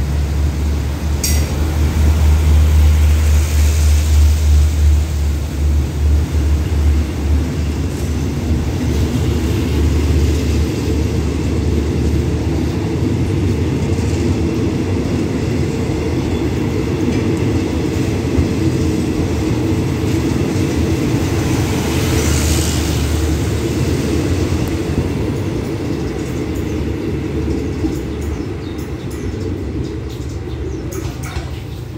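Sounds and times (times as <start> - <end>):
train wheels rumbling on rails: 0.0 - 31.9.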